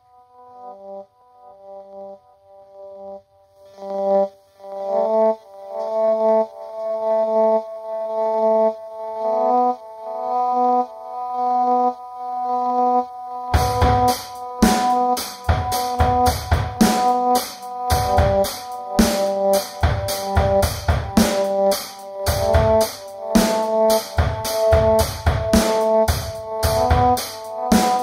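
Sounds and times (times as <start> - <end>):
sustained repeating pitched notes: 3.8 - 28.0
steady drum beat: 13.6 - 28.0.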